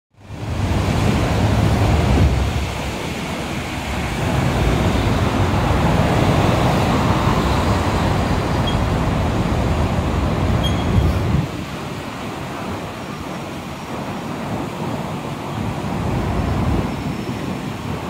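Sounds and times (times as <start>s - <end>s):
traffic rumble: 0.2s - 12.9s
truck passing: 0.8s - 10.5s.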